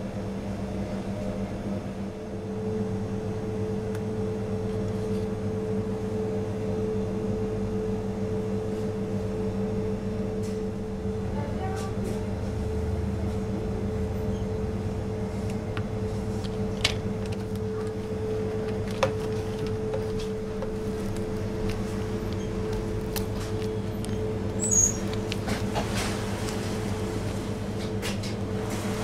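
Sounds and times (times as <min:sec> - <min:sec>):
steady machine hum: 0:00.0 - 0:29.0
brief high squeak: 0:24.6 - 0:25.0.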